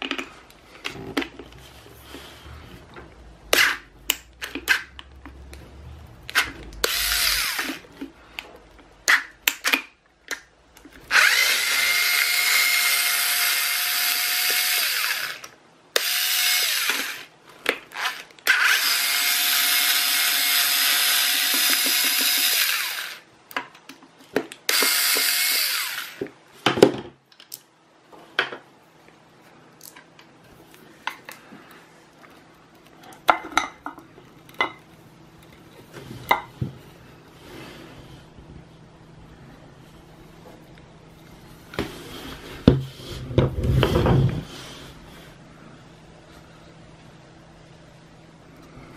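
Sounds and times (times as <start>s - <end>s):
cordless drill motor whine: 6.8s - 7.8s, 11.1s - 17.3s, 18.0s - 23.2s, 24.7s - 26.3s.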